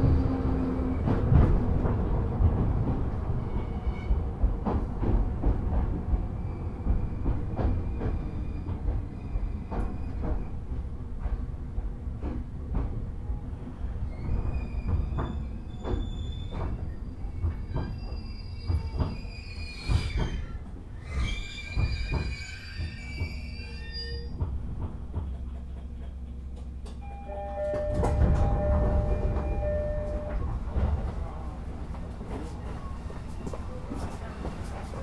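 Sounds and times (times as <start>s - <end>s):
train rumble: 0.0s - 35.0s
train wheels clicking over rail joints: 4.4s - 13.2s, 13.8s - 23.6s, 24.2s - 27.0s
wheel and brake squeal: 14.1s - 24.3s.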